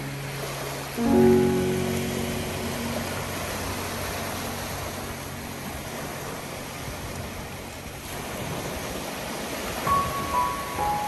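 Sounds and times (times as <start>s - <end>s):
waves washing onto shore: 0.0s - 11.0s.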